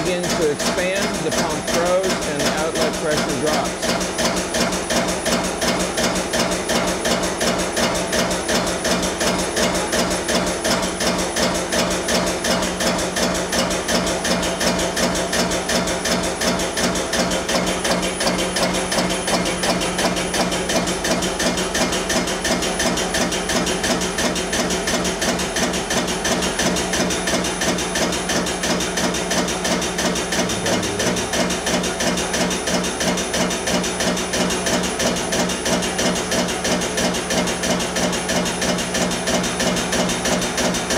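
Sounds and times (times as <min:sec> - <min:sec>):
steady hum: 0:30.3 - 0:32.4.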